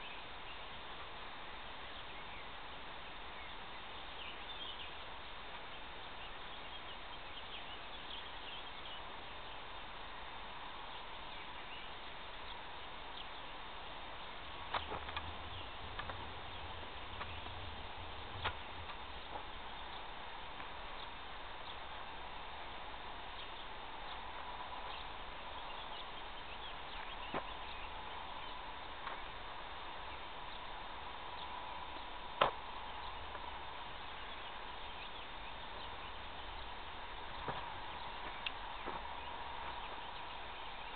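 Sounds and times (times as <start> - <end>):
outdoor background hiss: 0.0 - 40.9
low rumble: 14.2 - 23.2.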